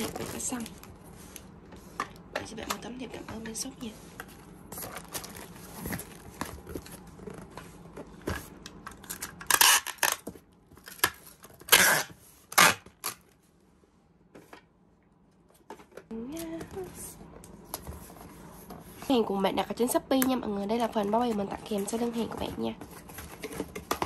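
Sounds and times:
cardboard and plastic rustling: 0.0 - 13.5, 15.4 - 24.0
packing tape ripping off dispenser: 9.0 - 13.3.

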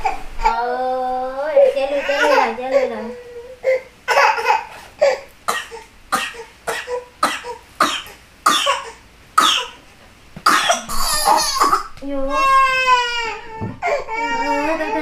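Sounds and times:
toddler sobbing: 0.0 - 5.3, 10.8 - 15.0.

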